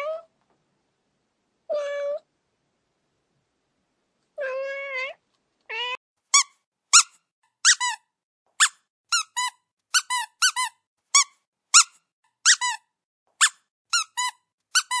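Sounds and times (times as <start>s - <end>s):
toy mouse squeaking: 6.3s - 15.0s.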